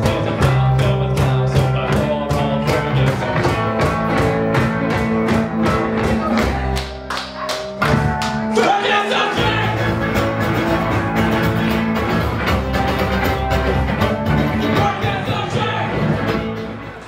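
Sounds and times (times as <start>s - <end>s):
drums: 0.0s - 17.0s
electric guitar: 0.0s - 17.0s
rock band playing: 0.0s - 17.0s.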